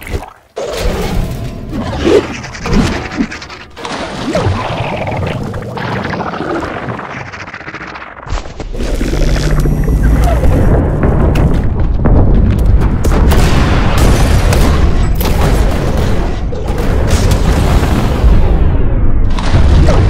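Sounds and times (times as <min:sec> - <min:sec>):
heavy low rumble: 0:08.8 - 0:14.1.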